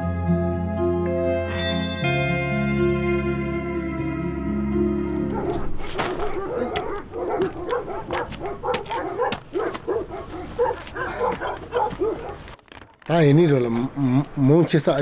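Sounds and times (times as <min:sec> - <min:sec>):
dogs barking and yelping: 0:05.0 - 0:12.6, 0:14.4 - 0:15.0.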